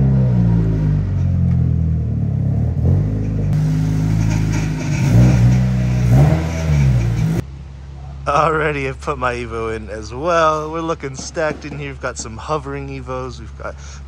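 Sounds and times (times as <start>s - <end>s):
car engine revving: 0.0s - 7.5s.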